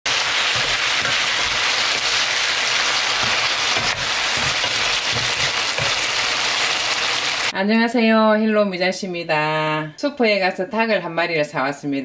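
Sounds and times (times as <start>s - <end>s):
food sizzling in a frying pan: 0.1s - 7.6s.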